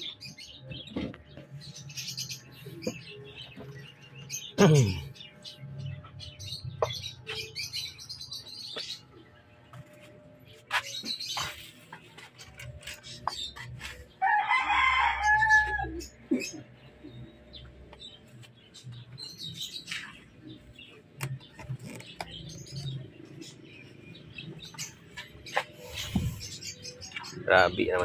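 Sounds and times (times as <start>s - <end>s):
rooster crowing: 14.2s - 16.1s.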